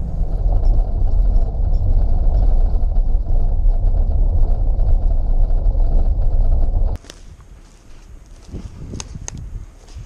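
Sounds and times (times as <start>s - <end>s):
van engine rumble: 0.0s - 7.0s
tyres on dirt track: 0.0s - 10.0s.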